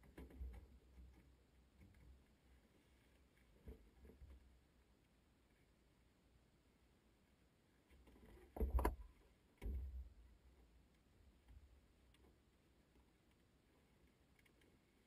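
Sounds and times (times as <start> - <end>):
muffled thumps with rustling: 8.0 - 10.2.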